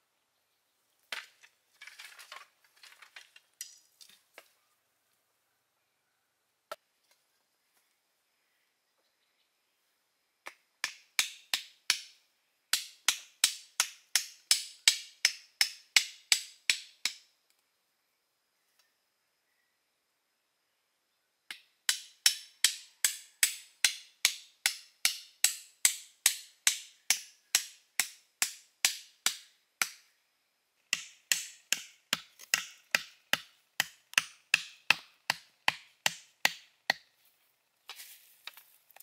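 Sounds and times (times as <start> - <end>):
tool striking wood: 21.9 - 30.0, 30.9 - 37.1.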